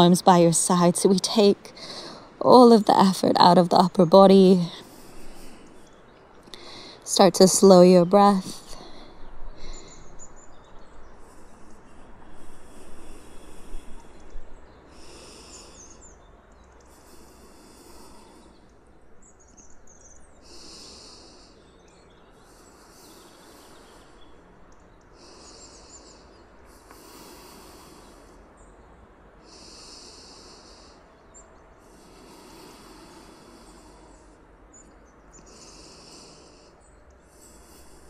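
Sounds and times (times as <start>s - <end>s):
low steady hiss: 0.0s - 38.0s
faint bird chirps: 13.3s - 27.0s.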